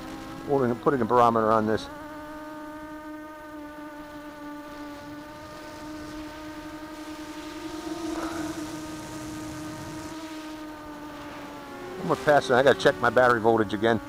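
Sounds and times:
quadcopter motors whining: 0.0s - 14.0s
rushing hiss: 5.3s - 11.4s.

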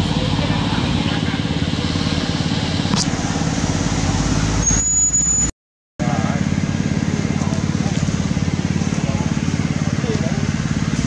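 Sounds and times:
engine running with low pulsing: 0.0s - 4.7s, 6.0s - 11.0s
thin high squeal: 4.6s - 5.5s.

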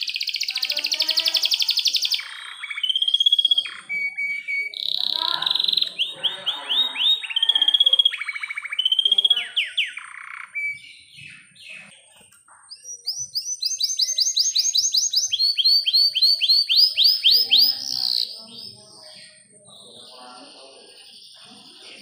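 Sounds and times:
canary singing trills: 0.0s - 22.0s.

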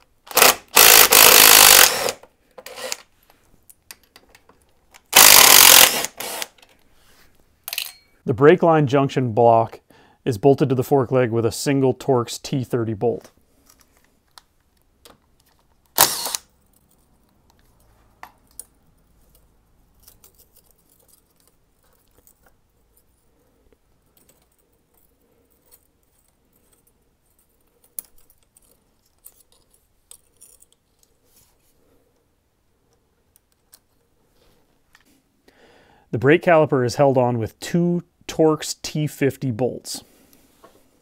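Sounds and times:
metal tools clinking and rattling: 7.7s - 8.2s.

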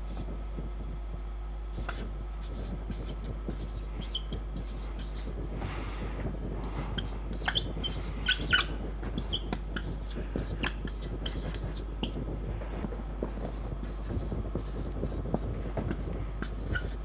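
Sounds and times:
marker squeaking on whiteboard: 1.8s - 5.3s, 6.7s - 12.2s, 13.2s - 17.0s.

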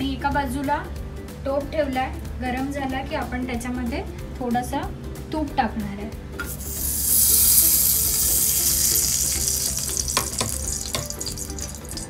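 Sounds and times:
ghee sizzling in a hot pot: 6.4s - 12.0s.

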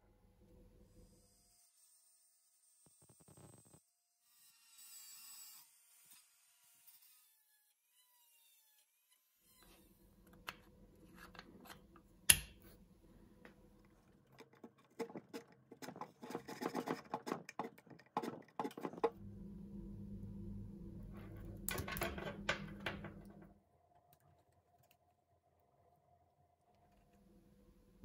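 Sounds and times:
scraping and tapping: 13.9s - 19.2s
steady low hum: 19.2s - 23.5s.

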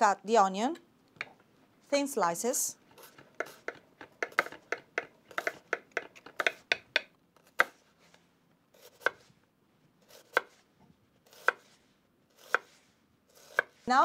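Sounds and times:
knife slicing on cutting board: 8.8s - 9.3s, 10.0s - 13.9s.

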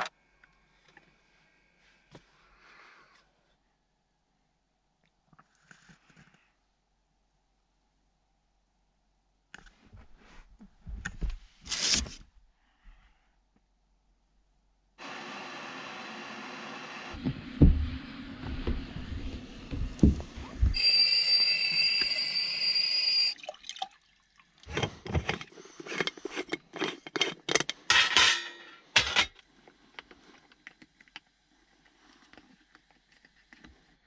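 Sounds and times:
stovetop kettle whistling: 15.0s - 23.5s
low knocks and rumbles: 17.2s - 20.8s.

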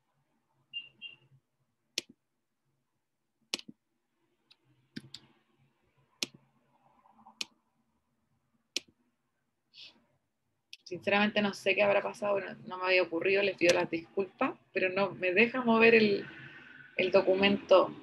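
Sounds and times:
faint room noise: 0.0s - 18.0s
computer mouse clicks: 3.5s - 3.8s, 4.5s - 5.3s, 6.2s - 6.4s, 7.4s - 7.6s, 8.7s - 9.0s, 13.6s - 13.8s.

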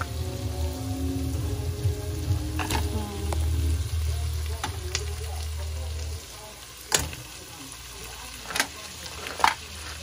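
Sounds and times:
soft background music: 0.0s - 6.3s
onion and garlic frying: 0.0s - 10.0s.

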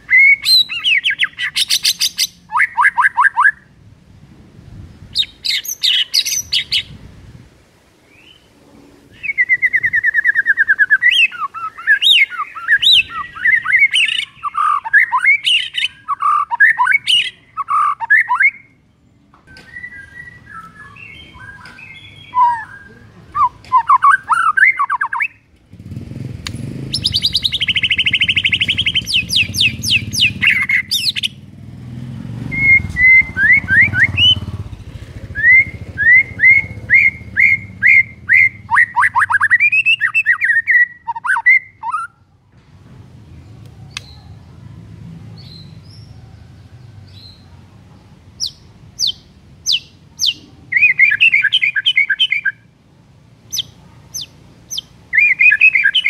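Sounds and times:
bird singing whistles and trills: 0.0s - 3.7s, 5.1s - 7.0s, 8.1s - 8.5s, 9.1s - 18.8s, 19.5s - 25.5s, 26.8s - 31.4s, 32.4s - 34.5s, 35.2s - 42.2s, 48.4s - 52.7s, 53.5s - 56.0s.

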